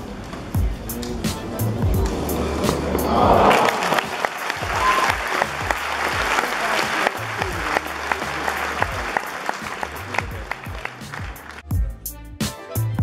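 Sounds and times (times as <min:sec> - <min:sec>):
background music with bass line: 0:00.0 - 0:13.0
spectators applauding: 0:02.9 - 0:11.7.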